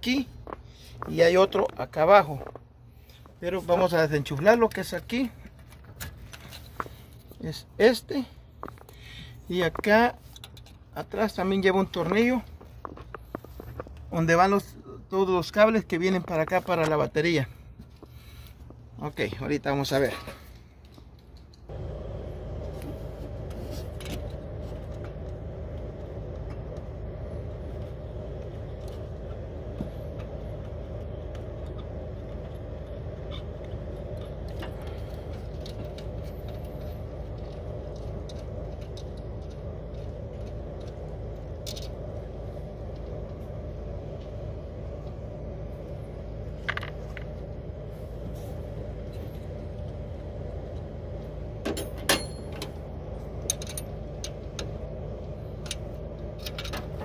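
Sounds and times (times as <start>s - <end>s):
vehicle engine idling: 17.4s - 57.0s.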